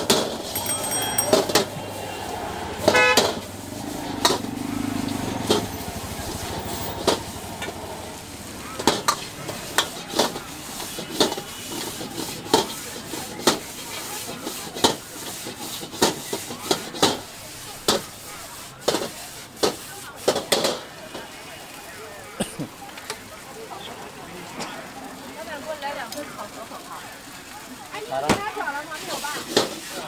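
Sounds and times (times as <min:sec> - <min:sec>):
steady sizzle: 0:25.0 - 0:30.0.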